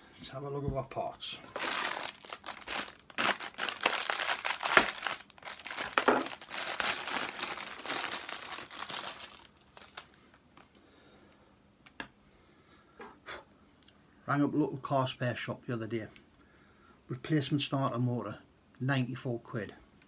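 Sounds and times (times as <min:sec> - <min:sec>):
plastic bag crinkling: 0:01.5 - 0:10.4.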